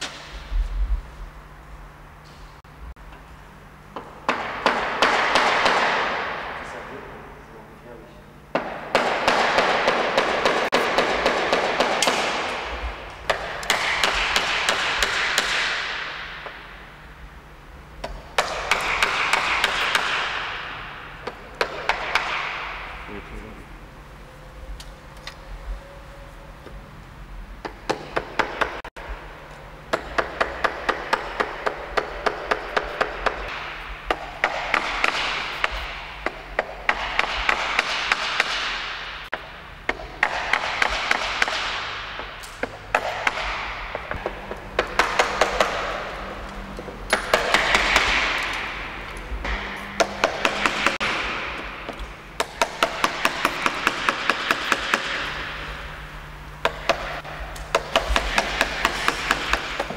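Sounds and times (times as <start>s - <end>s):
hammer striking chisel: 4.0s - 6.6s, 8.5s - 16.6s, 18.0s - 22.9s, 27.6s - 28.9s, 29.9s - 46.2s, 47.1s - 48.7s, 49.4s - 55.6s, 56.6s - 59.9s.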